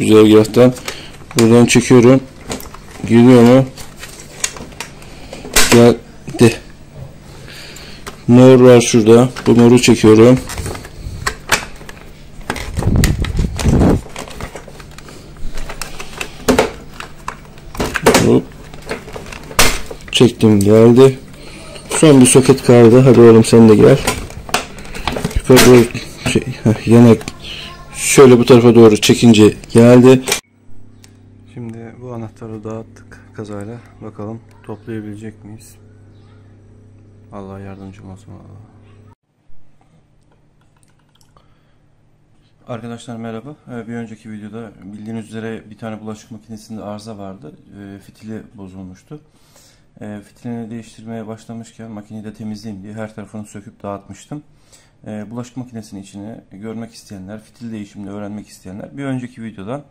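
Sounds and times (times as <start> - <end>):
hand-handling noise: 21.7 - 27.4.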